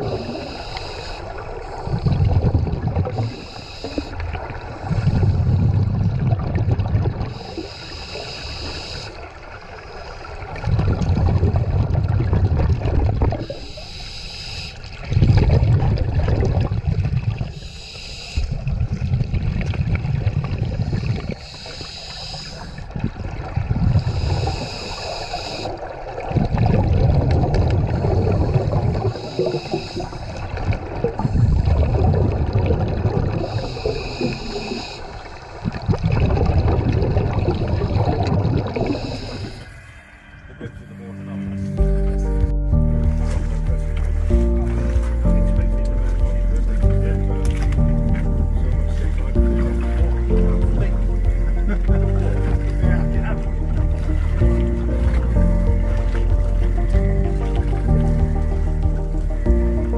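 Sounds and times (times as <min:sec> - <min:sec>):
regulator hiss on inhale: 0:00.0 - 0:02.0, 0:03.1 - 0:04.3, 0:07.3 - 0:09.2, 0:13.4 - 0:14.9, 0:17.5 - 0:18.7, 0:20.9 - 0:22.9, 0:24.0 - 0:25.8, 0:28.2 - 0:30.5, 0:33.4 - 0:35.2, 0:38.8 - 0:40.0
exhaled bubbles rumbling: 0:00.0 - 0:13.8, 0:14.8 - 0:17.8, 0:18.4 - 0:59.9.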